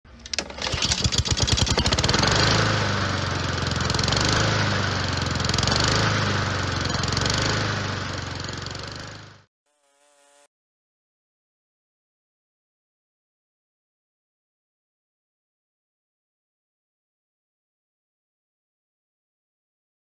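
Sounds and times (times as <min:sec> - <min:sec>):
lawn mower engine running: 0:00.1 - 0:10.4.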